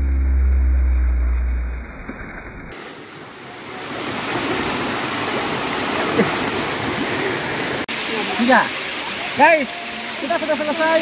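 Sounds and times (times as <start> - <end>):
deep muffled rumble: 0.0 - 2.7
waterfall rushing: 2.7 - 11.0.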